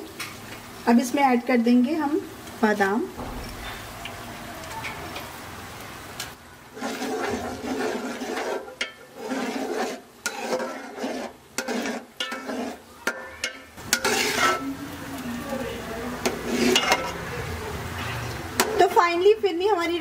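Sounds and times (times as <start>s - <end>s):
spoon scraping a steel pot: 6.8s - 14.8s, 16.2s - 17.2s.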